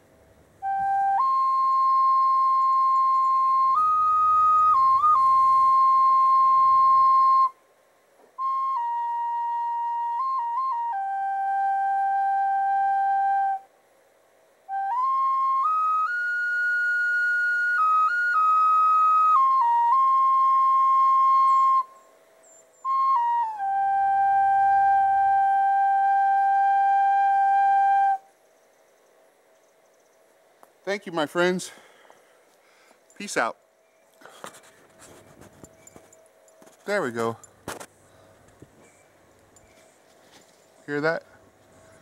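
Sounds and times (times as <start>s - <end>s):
flute playing slow melody: 0.6s - 7.6s, 8.3s - 13.8s, 14.6s - 28.3s.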